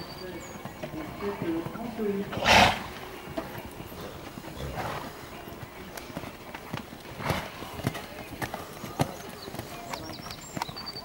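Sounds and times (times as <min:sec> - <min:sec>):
horse hoofbeats on sand: 0:00.0 - 0:11.0.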